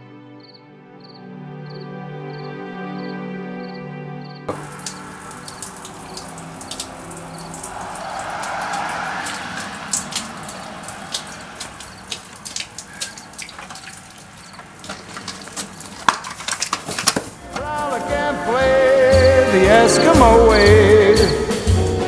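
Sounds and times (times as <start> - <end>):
steady hiss: 4.5 - 13.4
water dripping and splashing: 4.5 - 18.1
rush of water: 4.5 - 20.2.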